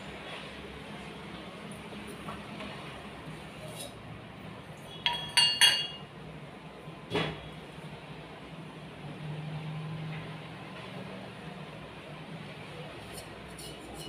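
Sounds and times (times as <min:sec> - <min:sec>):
steel vessels clinking: 0:05.0 - 0:06.0.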